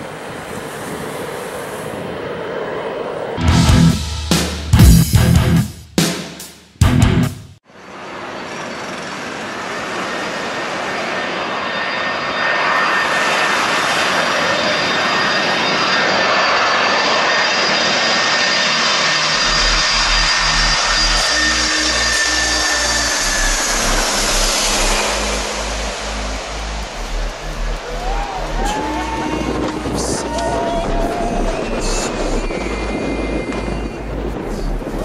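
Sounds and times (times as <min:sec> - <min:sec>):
jet engines roaring: 0:00.0 - 0:04.8, 0:07.8 - 0:35.0
low rumble: 0:03.4 - 0:05.6, 0:19.2 - 0:35.0.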